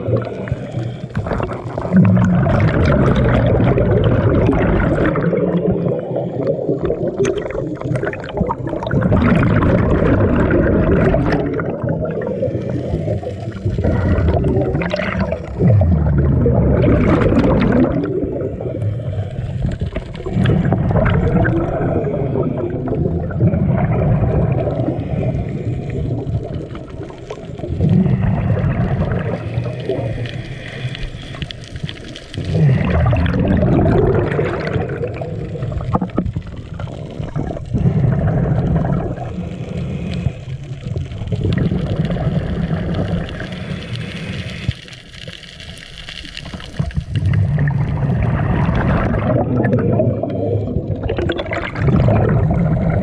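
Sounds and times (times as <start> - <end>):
diver breathing through regulator: 0.0 - 2.5, 27.8 - 34.0, 37.7 - 41.0, 42.2 - 45.0
bubbling exhalation: 0.0 - 53.0.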